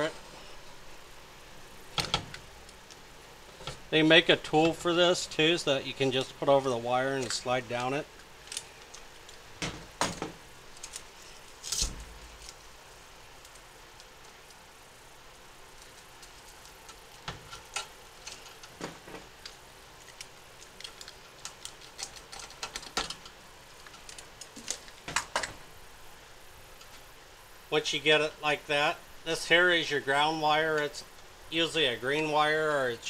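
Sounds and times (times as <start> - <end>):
cable jacket clicks and rustles: 6.0 - 12.7, 15.7 - 25.6.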